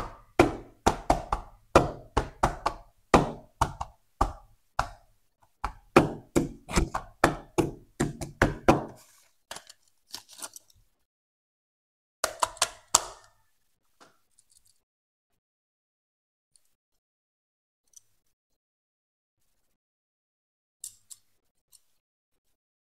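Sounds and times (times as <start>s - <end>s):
fingers tapping on cardboard: 0.0s - 9.0s.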